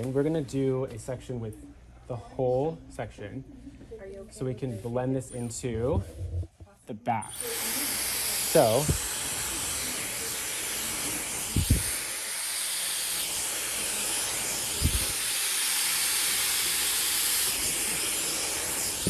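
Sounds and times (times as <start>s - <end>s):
soft low thumps: 5.8s - 6.8s
hair dryer blowing: 7.3s - 19.0s.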